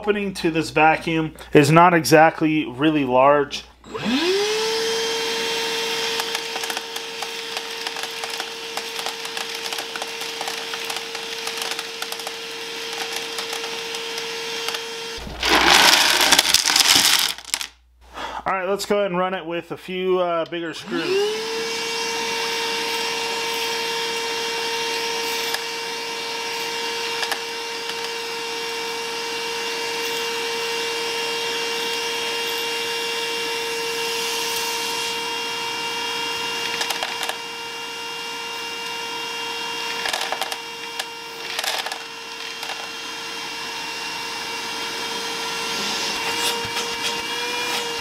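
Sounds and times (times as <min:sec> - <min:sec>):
wet dry vacuum whining: 0:03.5 - 0:17.7, 0:20.4 - 0:48.0
screws clattering through hose: 0:06.2 - 0:14.8, 0:36.7 - 0:37.4, 0:40.0 - 0:42.9.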